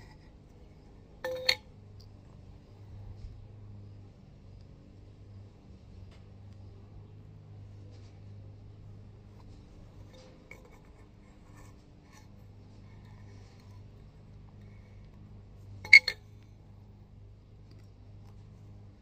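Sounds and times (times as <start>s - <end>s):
metal pipe fittings clinking: 1.2s - 1.7s, 15.8s - 16.2s.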